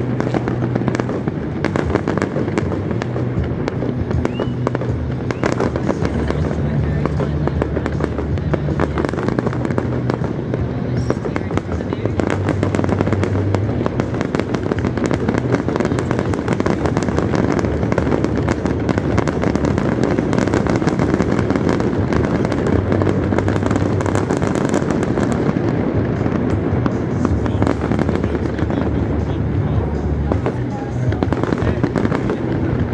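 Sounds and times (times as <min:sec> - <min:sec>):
fireworks bangs and crackles: 0:00.0 - 0:32.9.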